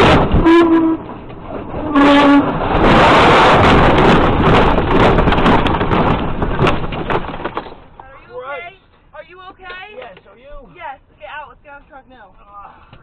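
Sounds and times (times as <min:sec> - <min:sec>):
crunching and scraping debris: 0:00.0 - 0:08.4.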